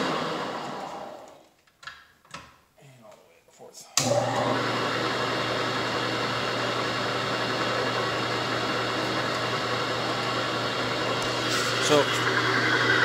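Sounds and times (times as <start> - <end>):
milling machine humming and whirring: 8.2 - 13.0.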